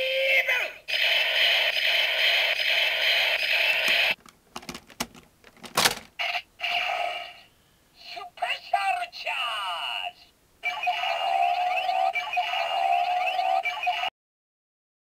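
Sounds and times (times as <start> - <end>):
electronic toy sound effect: 0.3 - 4.2, 6.2 - 7.5, 10.6 - 14.1.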